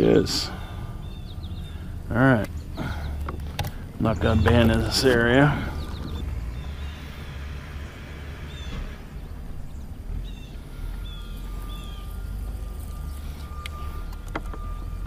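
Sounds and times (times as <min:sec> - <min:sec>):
bird chirping: 0:00.0 - 0:15.0
thin steady whine: 0:00.0 - 0:15.0
electric motor humming: 0:04.1 - 0:15.0.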